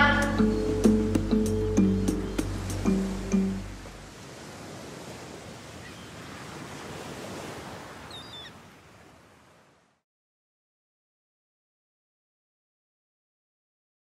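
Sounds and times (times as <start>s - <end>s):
sea waves: 0.0s - 10.0s.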